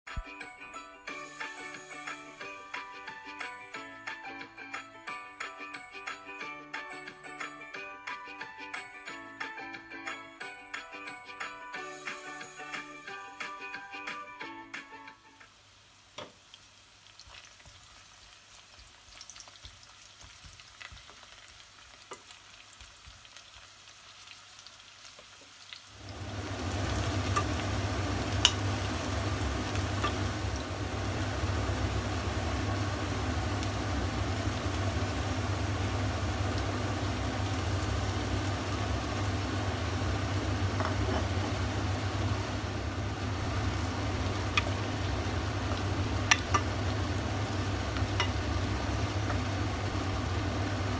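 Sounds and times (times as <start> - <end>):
food sizzling in oil: 15.2 - 50.9
wooden spoon tapping pot: 46.2 - 46.8, 48.1 - 48.4.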